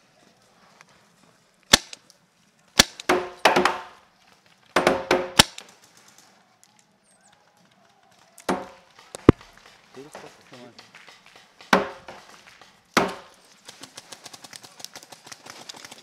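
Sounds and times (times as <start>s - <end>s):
paintball markers firing: 1.7s - 2.0s, 2.8s - 4.0s, 4.7s - 6.0s, 8.4s - 13.4s.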